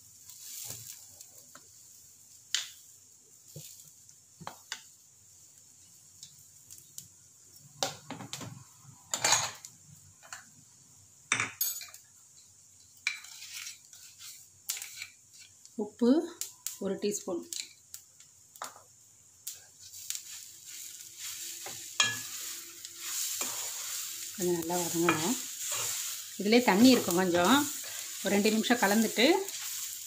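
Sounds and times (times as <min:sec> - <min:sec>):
kitchen utensils clinking: 0:09.1 - 0:09.6, 0:21.6 - 0:30.0.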